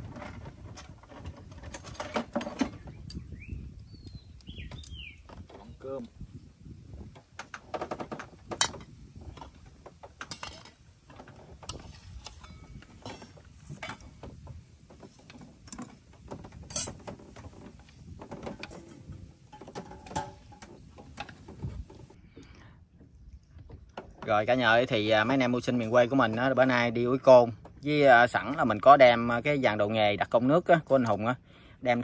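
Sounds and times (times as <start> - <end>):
dishes and utensils clinking: 10.2 - 10.8, 11.7 - 14.2, 18.5 - 21.5.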